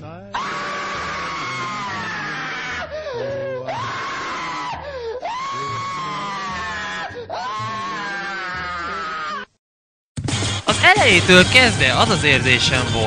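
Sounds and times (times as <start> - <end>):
boy screaming: 0.4 - 9.5.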